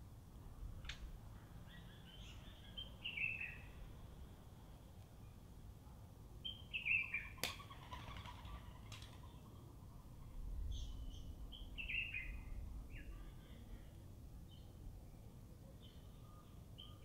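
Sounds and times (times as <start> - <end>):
sparrows chirping: 1.3 - 3.9, 6.4 - 7.5, 8.2 - 13.8, 14.5 - 17.0.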